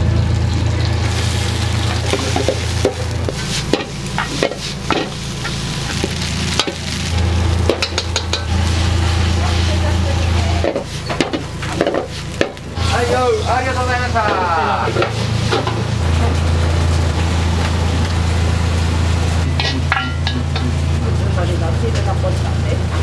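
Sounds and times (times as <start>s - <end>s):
pasta sizzling in a frying pan: 0.0s - 23.0s
steady low hum: 0.0s - 23.0s
metal clinks of pan and utensils: 19.5s - 20.7s.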